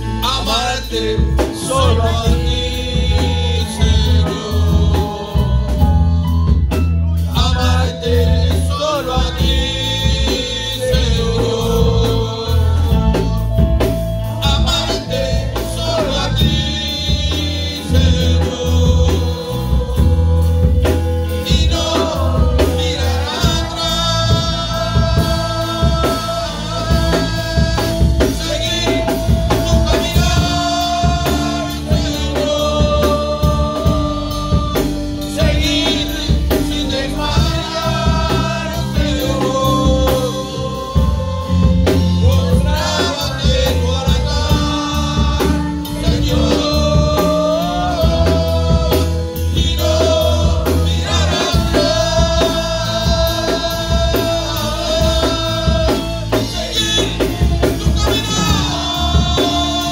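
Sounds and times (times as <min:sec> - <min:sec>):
drum kit beat: 0:00.0 - 0:59.9
keyboard: 0:00.0 - 0:59.9.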